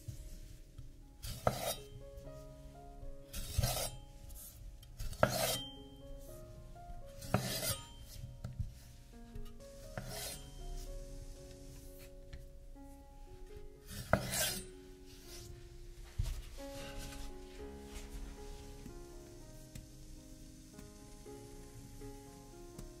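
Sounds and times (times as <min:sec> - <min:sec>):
soft background music: 0:00.0 - 0:23.0
kitchen utensil scraping: 0:01.2 - 0:01.9, 0:03.3 - 0:04.0, 0:05.0 - 0:05.8, 0:07.2 - 0:08.2, 0:09.4 - 0:10.6, 0:13.9 - 0:14.7.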